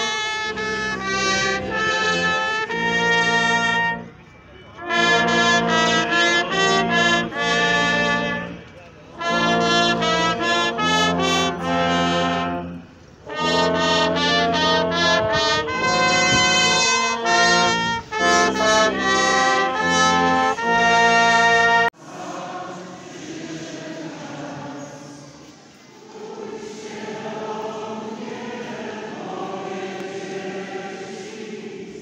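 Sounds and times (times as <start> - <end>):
brass band playing slow melody: 0.0 - 22.0
background noise: 0.0 - 32.0.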